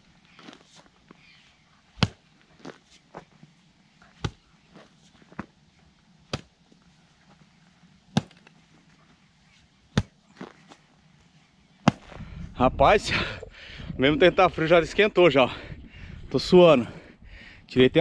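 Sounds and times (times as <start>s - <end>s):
hoe striking earth: 1.9s - 3.3s, 4.1s - 5.6s, 6.2s - 6.6s, 8.1s - 8.6s, 9.9s - 10.8s, 11.8s - 12.2s
clods of earth falling: 11.8s - 12.2s.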